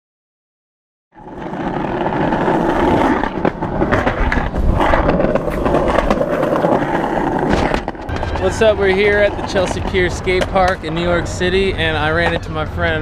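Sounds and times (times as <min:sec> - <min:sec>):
skateboard wheels rolling on concrete: 0:01.2 - 0:13.0.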